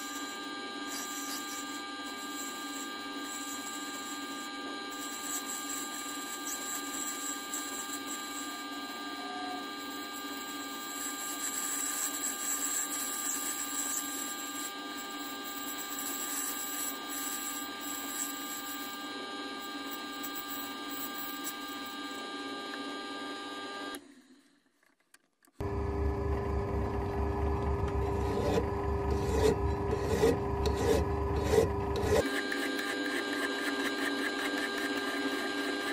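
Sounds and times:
cutting tool scraping hiss: 0.0 - 19.0
lathe whining: 25.6 - 35.9.

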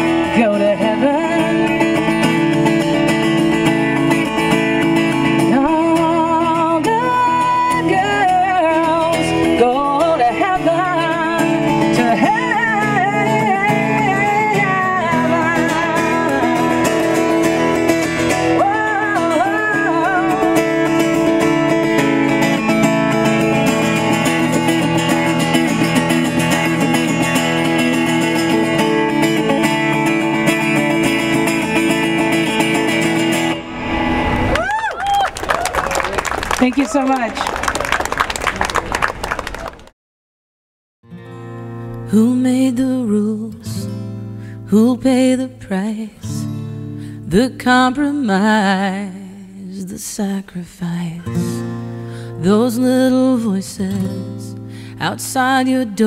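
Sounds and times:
acoustic guitar strumming: 0.0 - 34.6, 41.1 - 49.6, 51.0 - 56.0
woman singing wordless vocal: 0.3 - 2.0, 5.5 - 17.6, 18.5 - 22.0, 42.1 - 44.0, 44.6 - 46.5, 47.2 - 51.7, 52.3 - 56.0.

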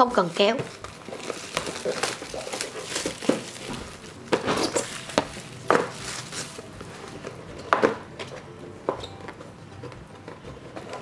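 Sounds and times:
plastic shrink wrap crinkling: 0.0 - 8.4.

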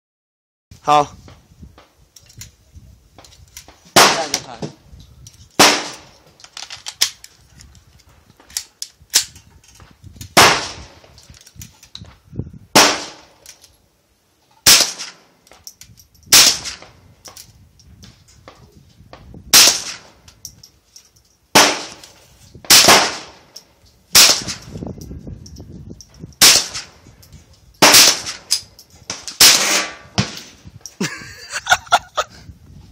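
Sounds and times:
rifle shots: 4.0 - 4.5, 5.6 - 6.1, 10.4 - 11.0, 12.8 - 13.4, 14.6 - 15.3, 16.3 - 16.8, 19.5 - 20.1, 21.5 - 22.1, 22.7 - 23.5, 24.1 - 24.7, 26.4 - 27.0, 27.8 - 30.6
faint gunshots: 4.0 - 4.6.

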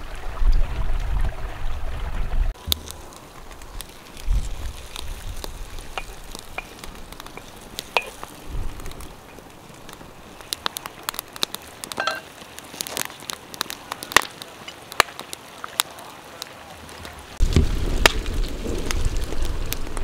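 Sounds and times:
wood fire crackling and popping: 2.5 - 20.0.

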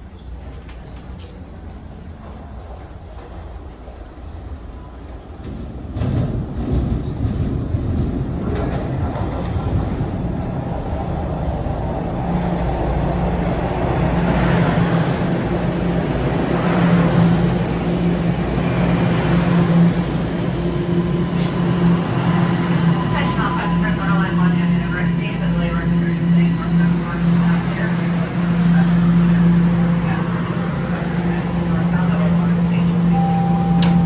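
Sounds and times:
subway train rumble: 0.0 - 34.0
brake squeals: 23.2 - 26.2.

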